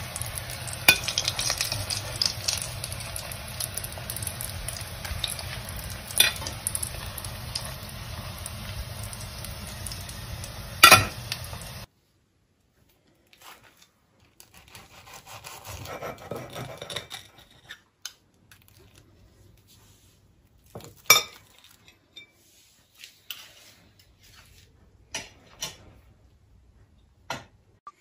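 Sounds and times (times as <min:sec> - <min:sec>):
knife sawing crisp crust: 0:13.4 - 0:17.0.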